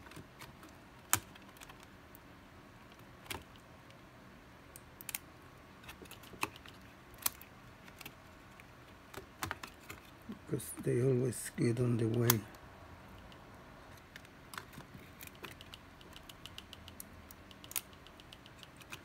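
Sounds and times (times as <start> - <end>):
light clicks and taps in laptop: 14.2 - 19.0.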